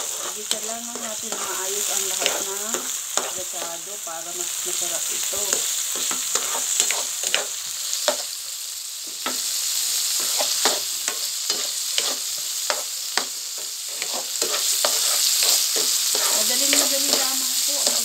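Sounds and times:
plastic spoon scraping a pan: 0:00.0 - 0:03.4, 0:06.0 - 0:07.5, 0:13.9 - 0:17.3
vegetables sizzling in hot oil: 0:00.0 - 0:18.0.

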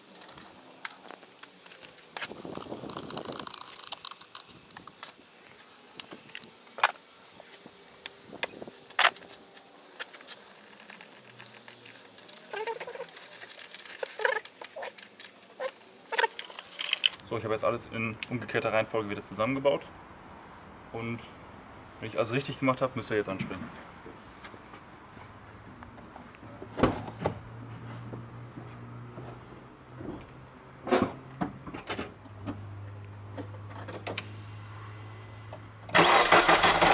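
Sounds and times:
small clicks and scrapes: 0:00.1 - 0:07.0, 0:08.9 - 0:17.2
squeaky creaks of rubber and metal: 0:10.2 - 0:17.0.

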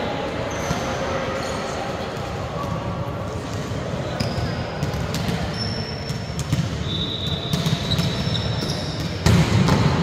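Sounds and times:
volleyballs hit and bouncing: 0:02.0 - 0:10.0.

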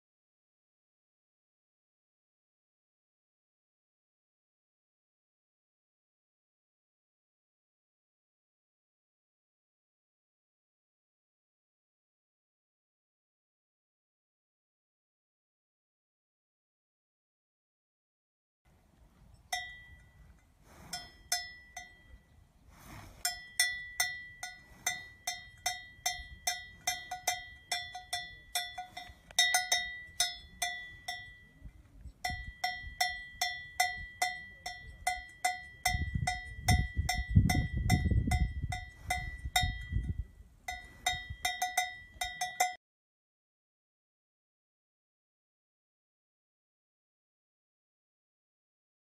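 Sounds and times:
cow bell clanking: 0:19.3 - 0:42.8.

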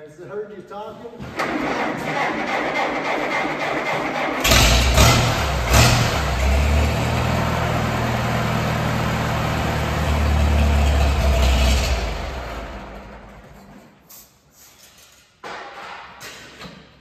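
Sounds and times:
tractor engine starting and idling: 0:01.3 - 0:14.0.

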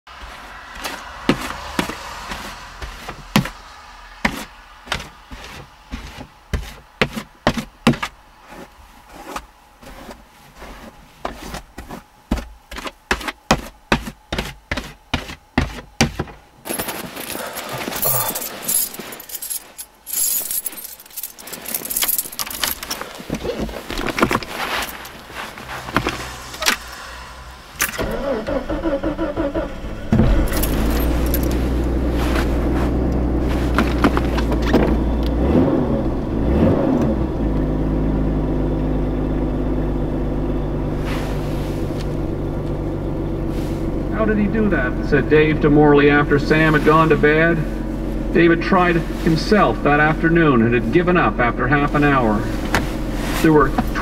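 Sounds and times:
snow scraping and rustling: 0:16.6 - 0:27.0, 0:30.7 - 0:34.6, 0:41.0 - 0:42.4, 0:43.4 - 0:44.0, 0:46.4 - 0:49.7, 0:51.9 - 0:54.0.

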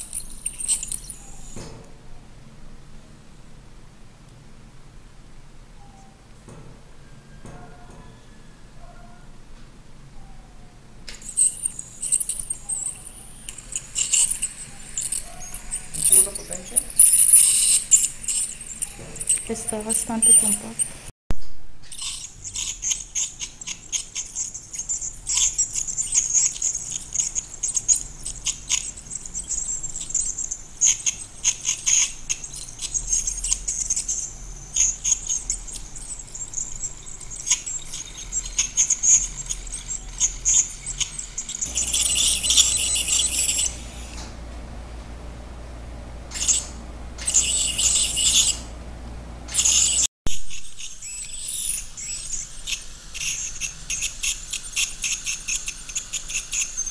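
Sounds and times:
ultrasonic dental scaler hissing chatter: 0:11.2 - 0:21.1, 0:22.0 - 0:44.2, 0:46.3 - 0:48.6, 0:51.0 - 0:56.9.

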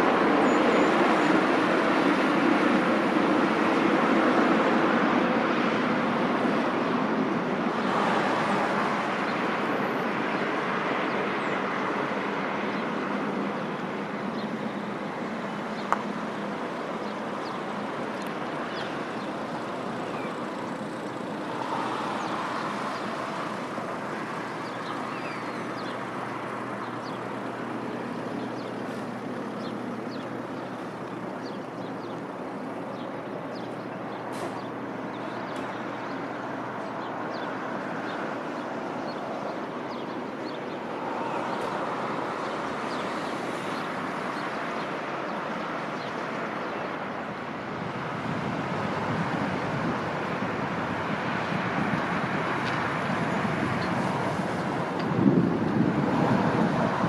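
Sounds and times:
distant jet engine roar: 0:00.0 - 0:57.0
high bird chirps: 0:24.5 - 0:26.1.

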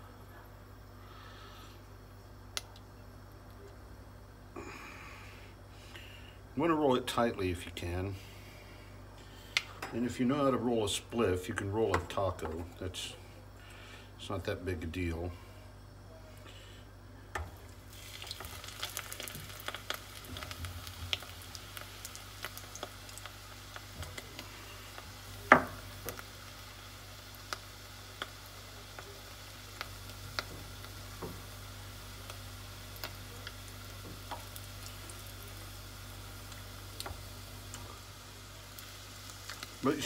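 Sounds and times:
tortilla sizzling in hot oil: 0:17.3 - 0:40.0.

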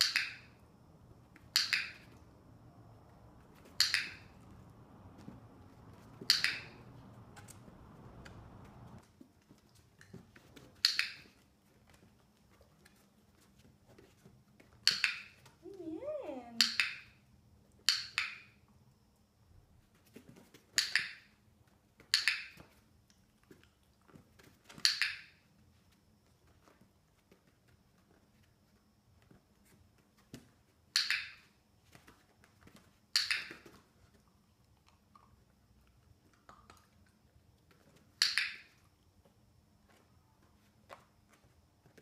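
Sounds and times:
dog-training clicker clicking: 0:01.4 - 0:02.2, 0:03.7 - 0:04.4, 0:06.2 - 0:07.6, 0:16.6 - 0:17.0.

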